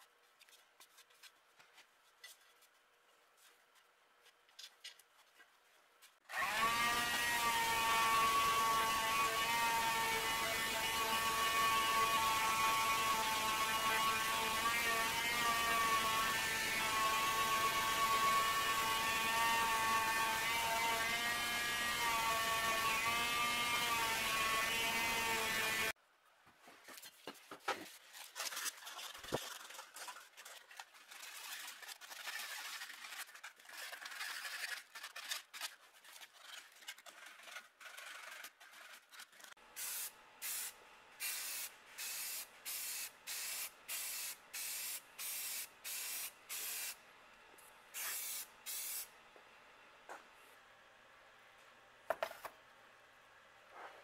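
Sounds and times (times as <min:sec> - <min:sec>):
small electric motor whirring: 0:06.3 - 0:26.0
handling clicks and scrapes: 0:26.8 - 0:39.6
spray paint hisses: 0:39.8 - 0:47.0, 0:48.0 - 0:49.1.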